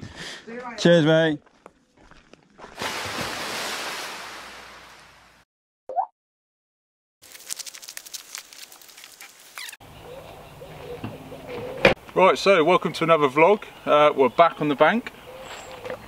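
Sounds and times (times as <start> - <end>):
rushing splash sound effect: 2.8 - 5.2.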